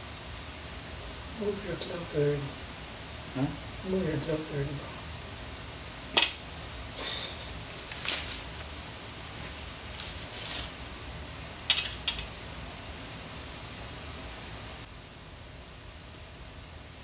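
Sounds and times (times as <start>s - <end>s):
steady hiss: 0.0s - 17.0s
rustling: 7.7s - 10.8s.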